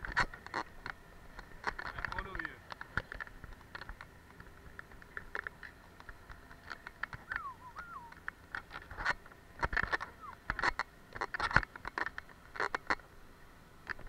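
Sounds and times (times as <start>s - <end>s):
short high gliding tones: 7.3s - 8.2s.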